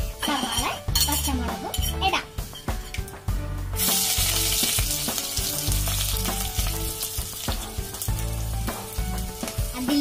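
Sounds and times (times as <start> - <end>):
loud sizzle in hot oil: 3.8 - 10.0.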